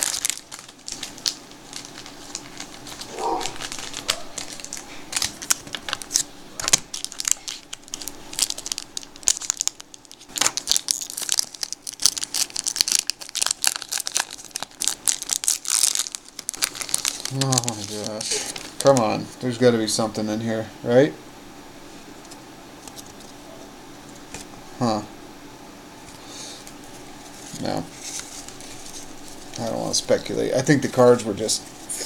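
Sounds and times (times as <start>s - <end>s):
foil wrapper crinkling and tearing: 0.0s - 19.2s, 26.8s - 32.0s.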